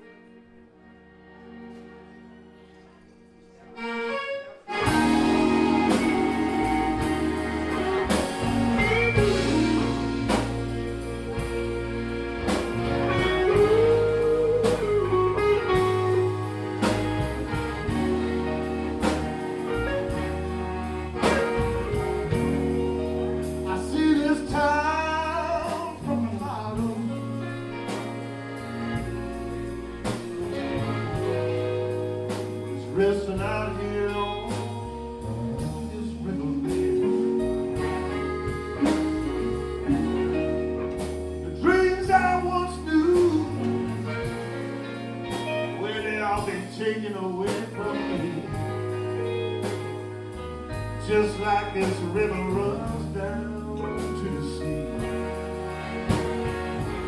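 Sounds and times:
sustained instrumental chords: 0.0 - 57.0
steady drum beat: 4.7 - 46.8, 47.4 - 57.0
person singing: 12.5 - 17.0, 20.9 - 28.2, 32.7 - 44.5, 45.2 - 49.4, 51.0 - 56.2.

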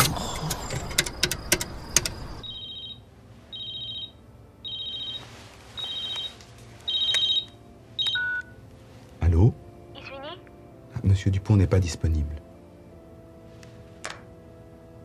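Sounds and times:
sharp clicks: 0.0 - 2.4
mobile phone ringing: 2.4 - 8.6.

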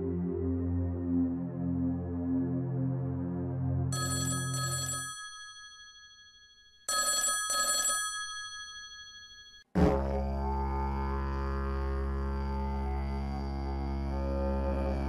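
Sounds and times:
low music drone: 0.0 - 4.0, 10.0 - 15.0
music: 0.0 - 4.0, 9.8 - 15.0
telephone ringing: 4.0 - 9.6.

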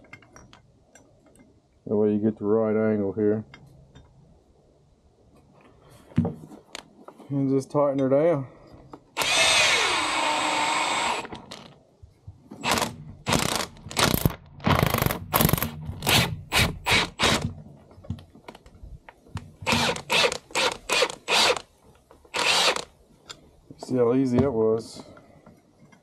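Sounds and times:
cordless drill whirring: 9.2 - 11.4, 19.6 - 21.7, 22.3 - 22.9.

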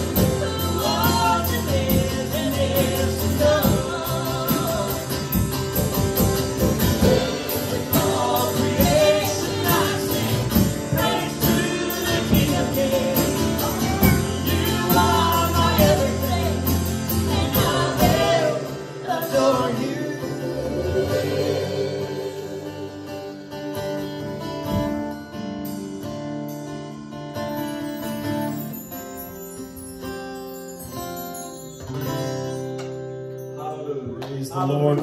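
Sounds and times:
woman singing lead: 0.0 - 6.0, 7.0 - 23.6
backing voices singing: 0.0 - 23.9
band with guitars bass and drums: 0.0 - 35.0.

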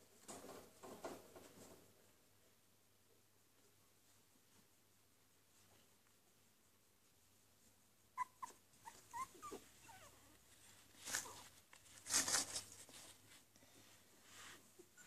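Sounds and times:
puppy squeaking and whimpering: 8.2 - 10.4.

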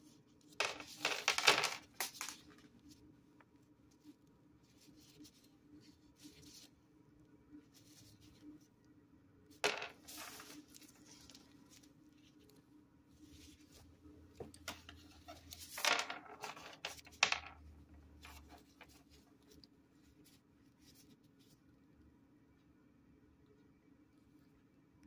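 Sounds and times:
plastic gloves rustling: 10.0 - 17.1.

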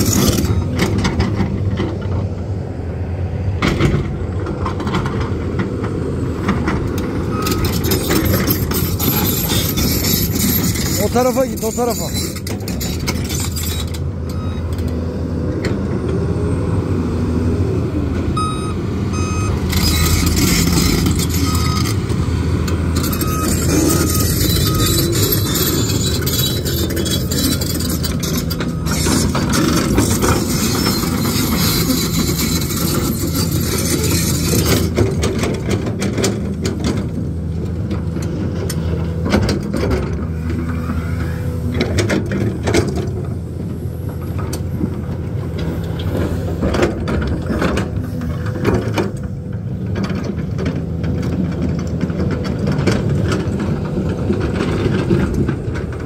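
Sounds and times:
excavator diesel engine running: 0.0 - 56.0
travel alarm beeping: 18.4 - 20.1.

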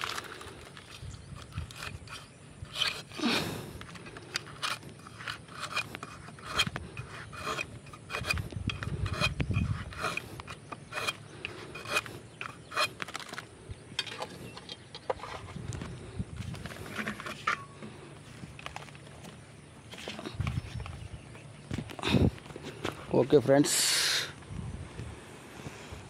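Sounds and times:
knife scraping strokes: 1.4 - 13.4.

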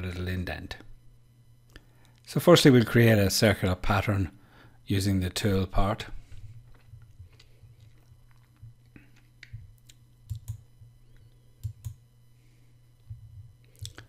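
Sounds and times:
low steady hum: 0.0 - 14.0
computer mouse clicks: 9.4 - 10.6, 11.6 - 12.0.

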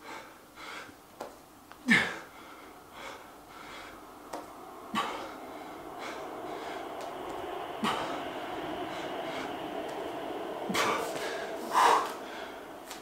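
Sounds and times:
man breathing hard: 0.0 - 1.0, 1.8 - 13.0
faint steady hum: 0.0 - 13.0
man grunting: 1.8 - 2.3.

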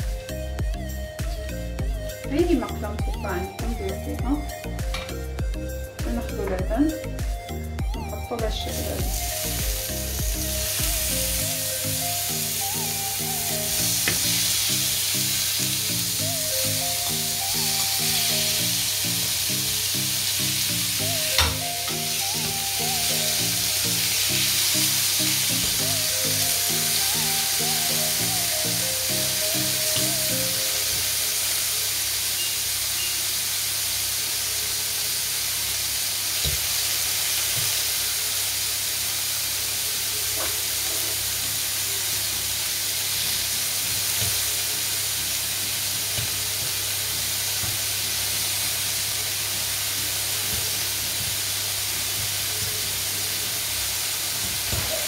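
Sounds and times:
background music: 0.0 - 32.7
chicken sizzling in grill pan: 8.5 - 55.0.

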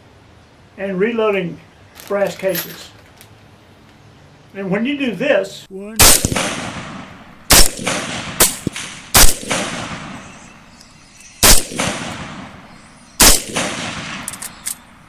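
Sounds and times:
suppressed rifle shots: 6.0 - 10.4, 11.4 - 14.8.

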